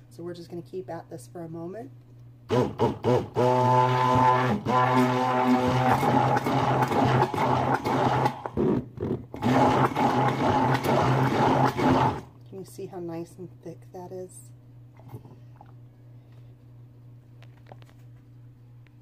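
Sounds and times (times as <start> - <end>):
immersion blender churning: 2.5 - 12.3.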